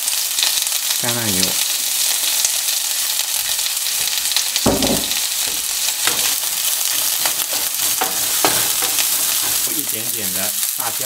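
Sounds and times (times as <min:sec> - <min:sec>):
onions sizzling in oil: 0:00.0 - 0:11.0
short low thud: 0:04.7 - 0:05.2
wooden spatula scraping pan: 0:06.0 - 0:09.8.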